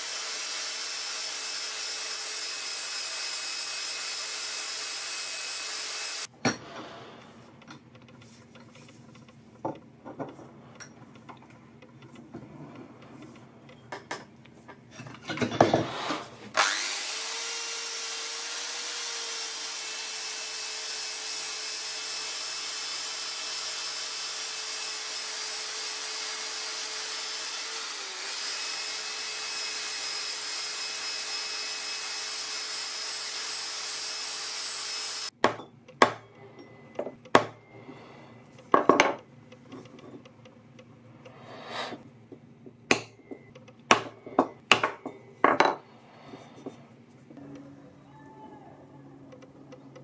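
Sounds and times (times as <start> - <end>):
wire brush wheel whirring: 16.6 - 19.9
hammer striking metal punch: 42.9 - 43.3.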